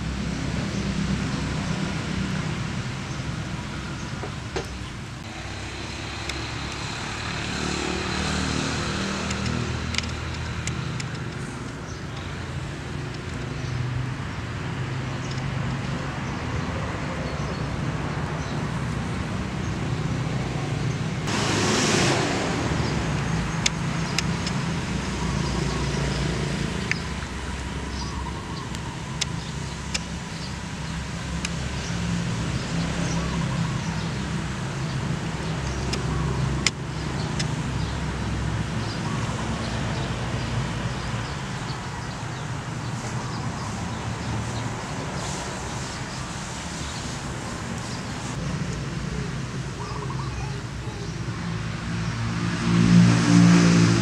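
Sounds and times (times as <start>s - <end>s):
rush of noise: 18.3s - 35.6s.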